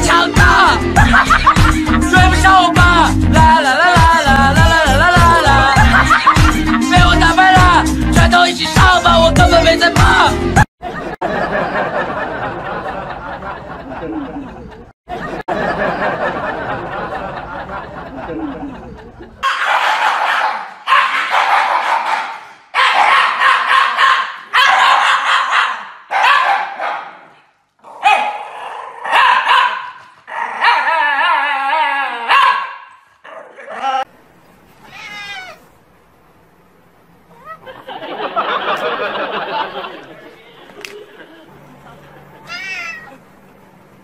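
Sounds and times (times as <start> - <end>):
dog howling: 30.4 - 32.5.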